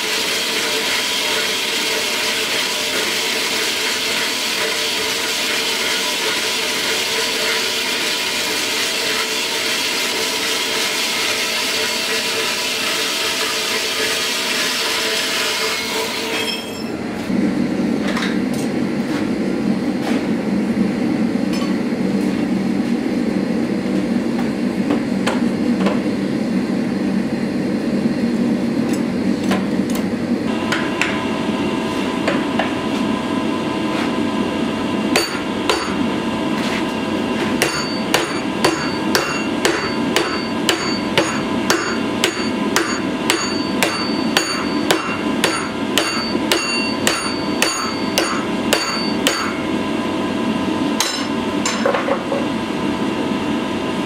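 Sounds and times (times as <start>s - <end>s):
power saw cutting steel: 0.0s - 16.8s, 37.6s - 49.6s
gas forge roaring: 0.0s - 54.0s
hammer striking hot steel: 35.1s - 36.1s, 37.4s - 49.7s, 51.0s - 52.0s.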